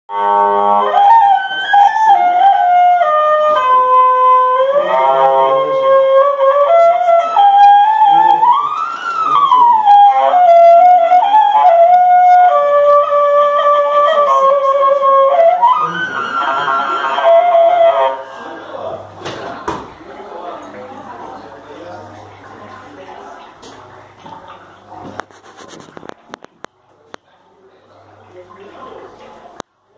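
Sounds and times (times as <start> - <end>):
hurdy-gurdy string tone: 0.1 - 19.1.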